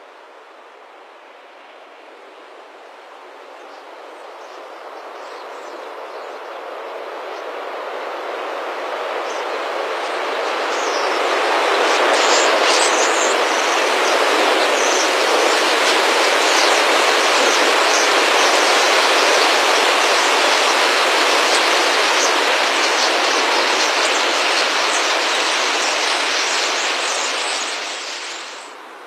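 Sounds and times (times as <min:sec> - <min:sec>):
rush of many wingbeats: 0:08.8 - 0:28.8.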